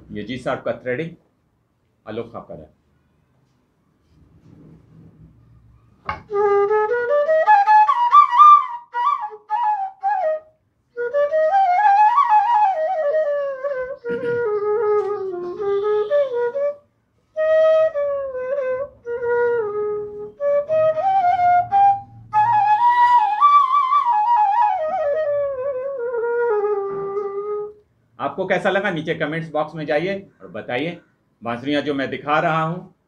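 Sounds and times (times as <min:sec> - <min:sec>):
bamboo flute melody: 0:05.9 - 0:27.8.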